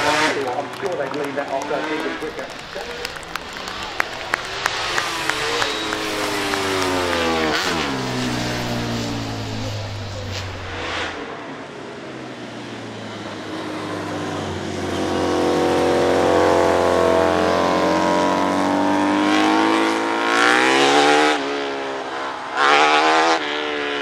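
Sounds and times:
motorcycles accelerating past: 0.0s - 11.6s, 13.4s - 24.0s
sharp high engine revs: 1.6s - 11.3s.

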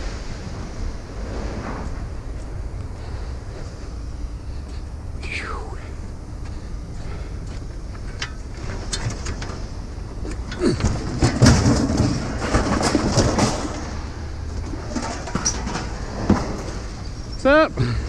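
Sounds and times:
steady low rumble: 0.0s - 18.0s
scrap metal clanking and scraping: 8.0s - 17.4s.

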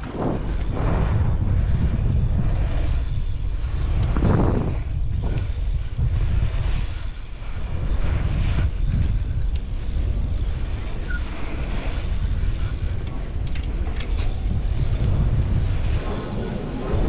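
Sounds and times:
bike tyres rolling over concrete: 0.0s - 17.0s
wind rushing over microphone: 0.0s - 17.0s.

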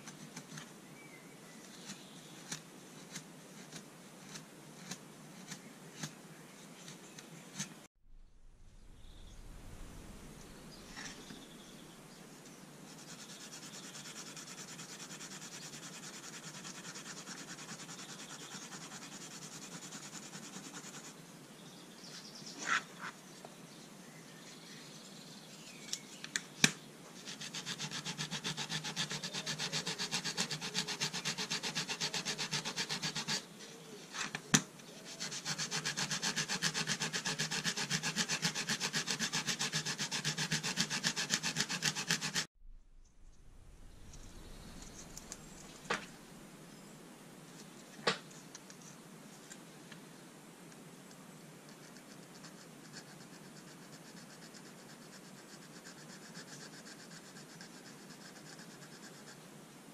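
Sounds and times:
rubbing along folding rule: 35.2s - 42.5s.

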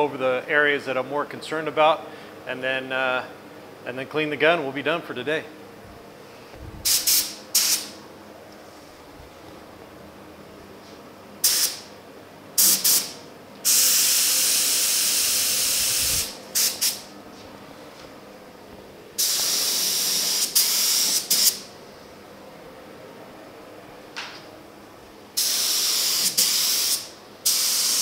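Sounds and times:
spray gun air hissing: 6.8s - 8.0s, 11.4s - 11.9s, 12.6s - 17.1s, 19.2s - 21.7s, 25.4s - 28.0s.

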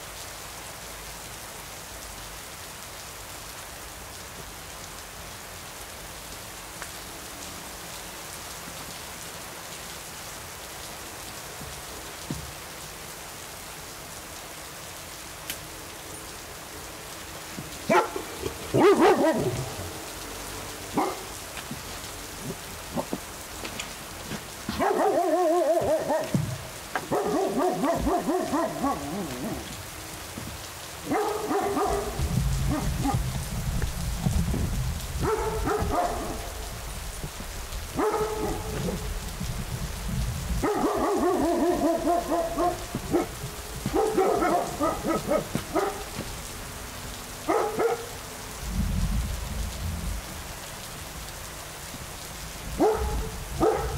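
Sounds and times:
steady rain: 0.0s - 53.9s
dog whining and yowling: 24.8s - 26.4s, 27.1s - 29.7s, 40.8s - 43.4s.

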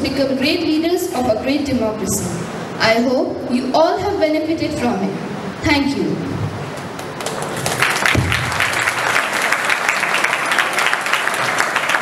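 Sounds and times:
audience applause: 6.9s - 12.0s.

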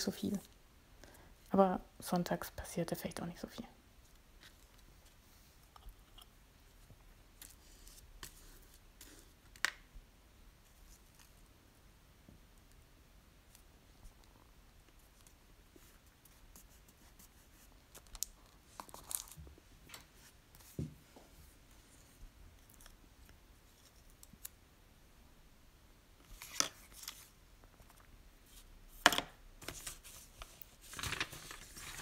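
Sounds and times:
paper rustling: 26.3s - 27.3s, 29.6s - 32.0s.

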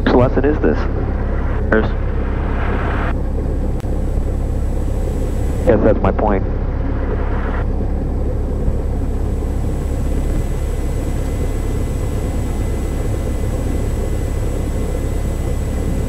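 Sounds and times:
propeller plane engine idling: 0.0s - 16.0s.

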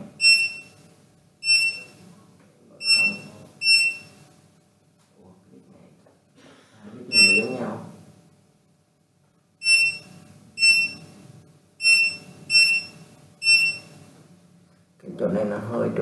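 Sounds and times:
touchscreen beeps: 0.2s - 0.7s, 1.4s - 2.0s, 2.8s - 4.1s, 7.1s - 7.6s, 9.6s - 11.0s, 11.8s - 13.9s.

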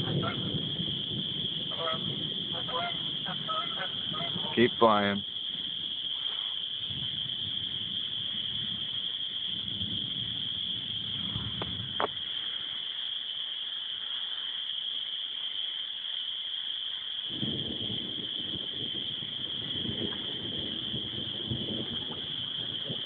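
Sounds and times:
chorus of calling frogs: 0.0s - 17.3s
low rumbles: 17.3s - 23.0s.

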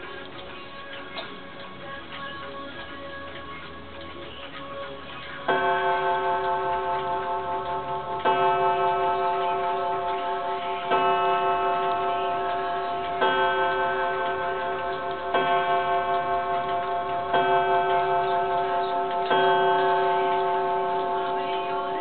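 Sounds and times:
clock ticking: 0.0s - 22.0s
clock striking on gong: 5.5s - 22.0s.

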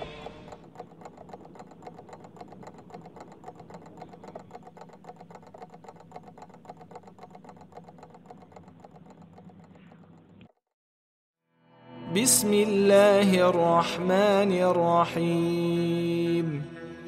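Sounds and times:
faint rapid clicking: 0.0s - 10.6s.

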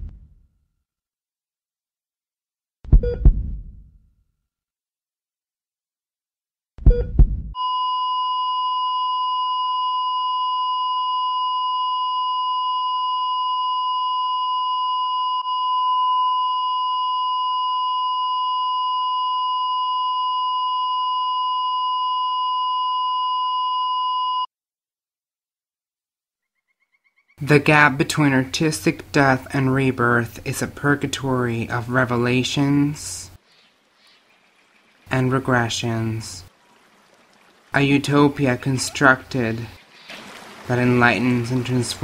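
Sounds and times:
deep double thump: 2.9s - 4.0s, 6.8s - 7.6s
steady electronic beep tone: 7.6s - 24.5s.

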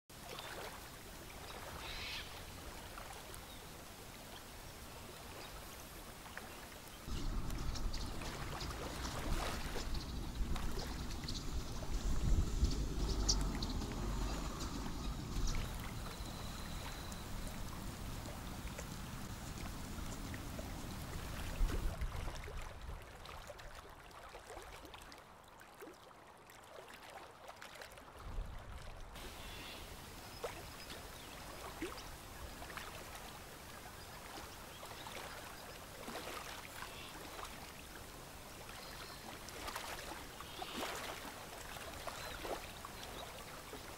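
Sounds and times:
water lapping: 0.1s - 43.9s
low rumble: 7.1s - 22.0s.

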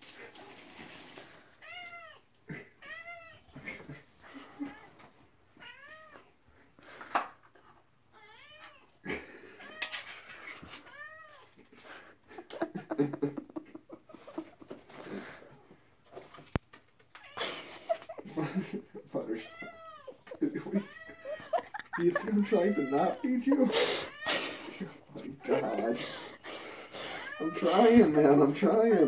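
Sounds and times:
rustling: 0.0s - 2.0s
cat meowing: 1.6s - 3.5s, 5.6s - 6.3s, 8.2s - 8.9s, 9.6s - 11.6s, 19.3s - 24.7s, 27.0s - 28.2s.

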